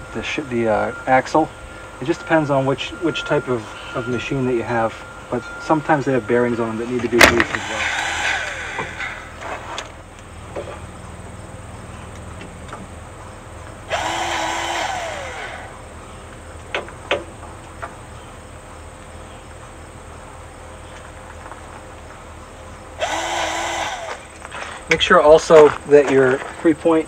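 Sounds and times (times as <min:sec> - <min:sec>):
grease gun motor whirring: 0:07.3 - 0:09.3, 0:13.9 - 0:15.8, 0:23.0 - 0:24.4.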